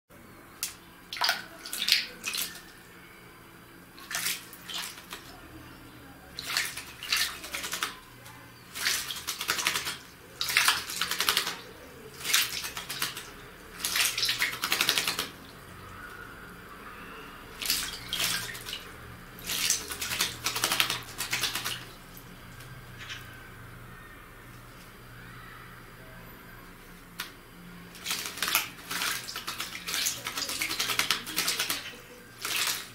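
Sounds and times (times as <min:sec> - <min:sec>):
bird splashing in water: 0:00.6 - 0:02.7, 0:04.0 - 0:05.4, 0:06.4 - 0:16.2, 0:17.5 - 0:22.3, 0:27.9 - 0:32.9.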